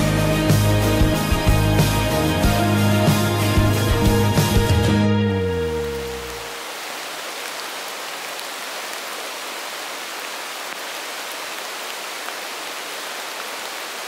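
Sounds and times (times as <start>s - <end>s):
steady rain hiss: 5.4s - 14.0s.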